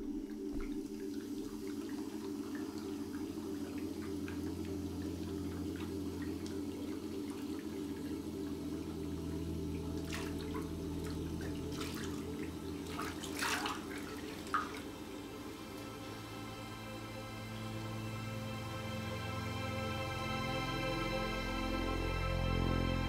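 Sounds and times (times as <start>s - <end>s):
water running from sink tap: 0.0s - 16.2s
steady low hum: 0.0s - 23.0s
water splashing on face: 11.4s - 15.0s.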